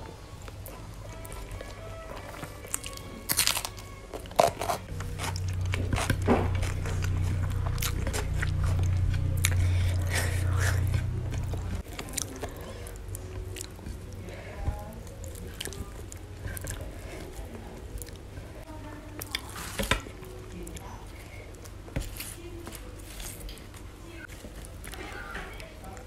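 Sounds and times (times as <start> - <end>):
low steady hum: 0.0 - 26.0
crunchy biting and chewing: 0.4 - 14.2.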